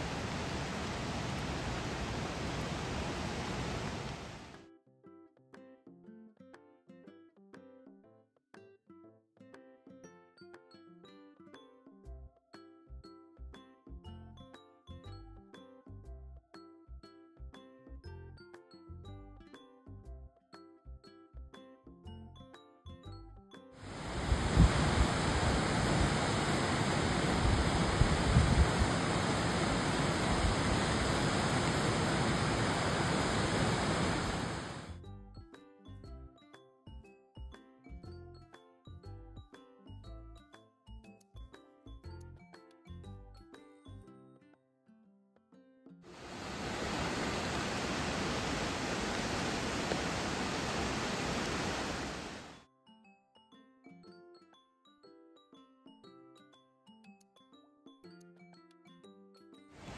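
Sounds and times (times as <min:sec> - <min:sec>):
rushing river rapids: 0:00.0 - 0:04.5, 0:23.8 - 0:34.9, 0:46.2 - 0:52.6.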